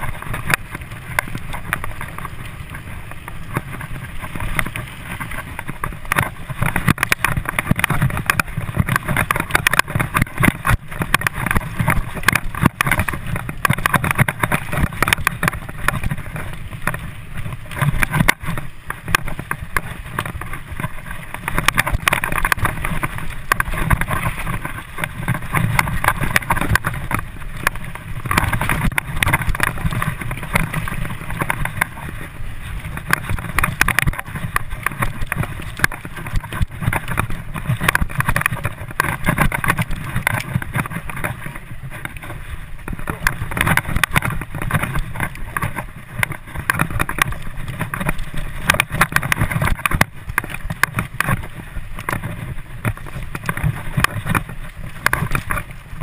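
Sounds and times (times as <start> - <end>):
bike rattling: 0.0 - 56.0
bike tyre rumble: 0.0 - 56.0
wind on microphone: 0.0 - 56.0.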